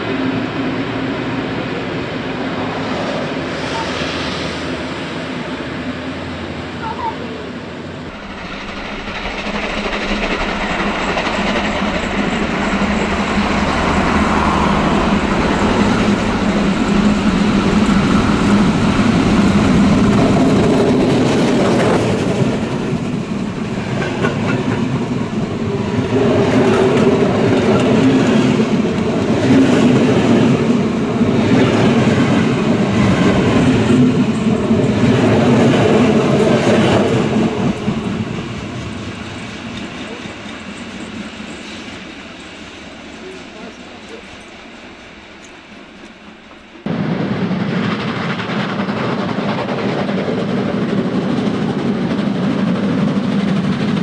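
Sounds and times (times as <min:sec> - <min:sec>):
steam locomotive passing: 0:00.0 - 0:54.0
wheels clacking over rails: 0:08.1 - 0:25.6.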